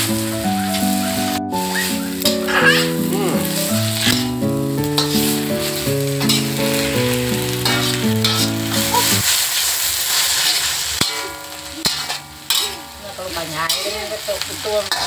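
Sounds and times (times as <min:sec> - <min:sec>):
instrumental melody: 0:00.0 - 0:09.2
greens sizzling in a wok: 0:00.0 - 0:15.0
spatula scraping a wok: 0:03.9 - 0:15.0.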